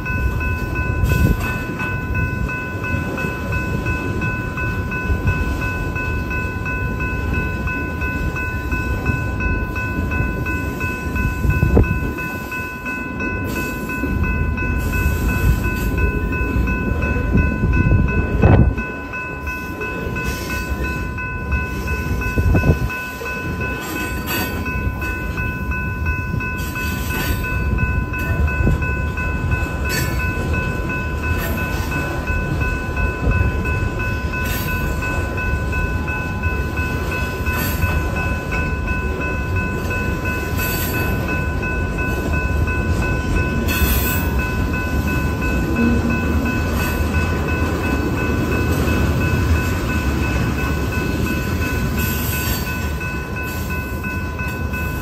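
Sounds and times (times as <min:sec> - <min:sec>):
crossing bell ringing: 0:00.0 - 0:55.0
freight train wheels rumbling: 0:00.0 - 0:55.0
train cars clanking: 0:00.0 - 0:55.0.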